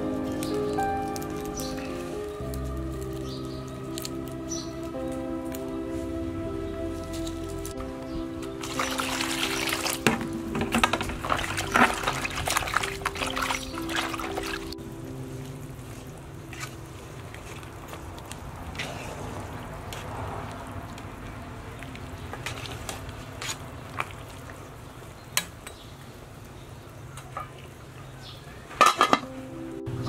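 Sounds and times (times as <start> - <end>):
steady low hiss: 0.0 - 22.1.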